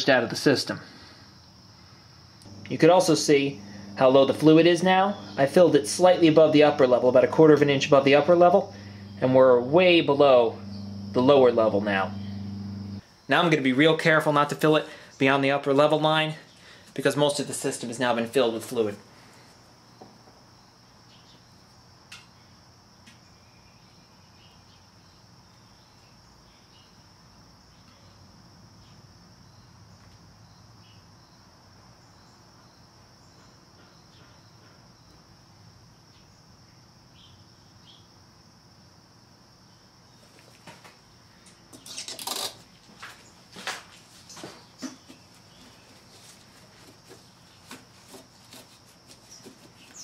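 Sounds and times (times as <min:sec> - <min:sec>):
high-pitched whine: 0:02.5 - 0:13.0.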